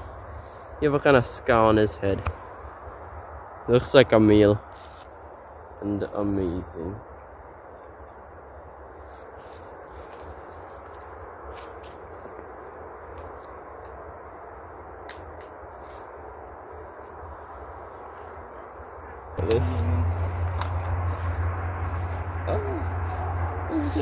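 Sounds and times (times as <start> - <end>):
insects trilling: 0.0 - 24.0
distant highway traffic rumble: 18.1 - 24.0.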